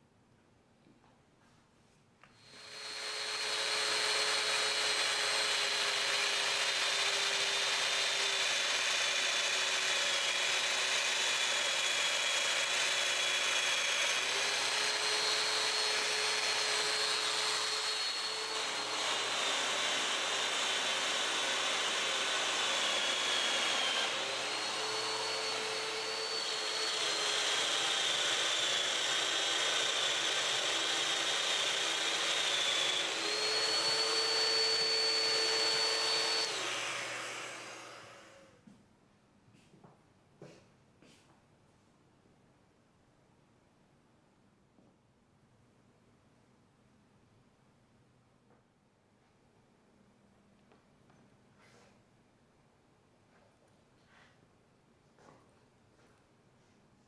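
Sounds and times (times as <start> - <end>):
joiner motor whining: 2.4 - 38.5
dust extractor running: 2.6 - 38.4.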